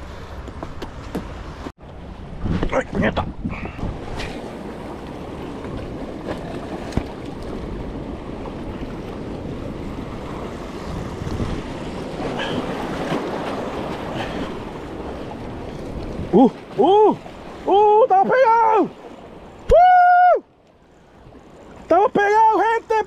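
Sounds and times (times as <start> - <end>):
wind buffeting microphone: 0.0 - 17.7
waves lapping against rocks: 0.0 - 19.7.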